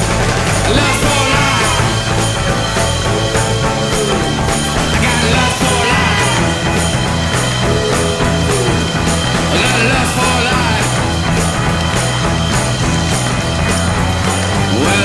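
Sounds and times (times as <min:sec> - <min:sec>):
drum beat: 0:00.0 - 0:15.0
rock song: 0:00.0 - 0:15.0
person singing: 0:00.6 - 0:11.2, 0:14.6 - 0:15.0.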